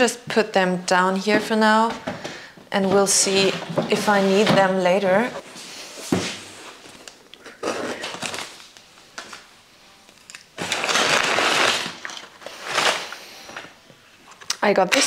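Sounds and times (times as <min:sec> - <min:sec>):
packing paper rustling: 0:06.5 - 0:09.5, 0:10.6 - 0:13.8.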